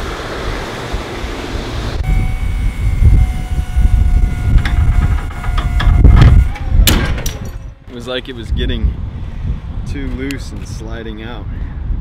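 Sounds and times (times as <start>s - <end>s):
electric forklift whining: 2.0s - 7.4s
load clicking and knocking: 6.8s - 7.6s.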